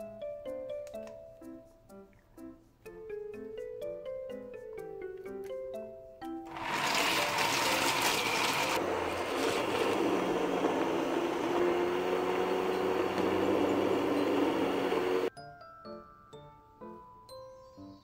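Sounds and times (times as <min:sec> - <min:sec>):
stick blender grinding beans: 0:06.5 - 0:15.3.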